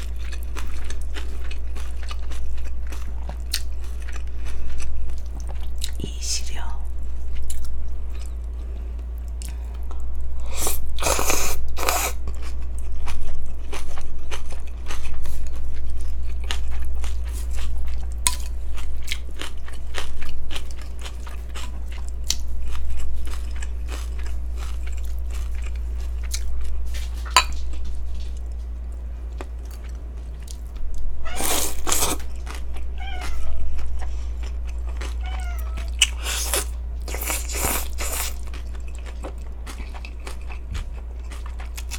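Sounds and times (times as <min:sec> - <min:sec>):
wet chewing and mouth clicks: 0:00.0 - 0:06.0, 0:07.3 - 0:08.5, 0:09.2 - 0:28.6, 0:29.3 - 0:41.9
steady low hum: 0:00.0 - 0:41.9
cat meowing faintly: 0:31.2 - 0:31.8, 0:33.0 - 0:33.8, 0:35.1 - 0:36.2.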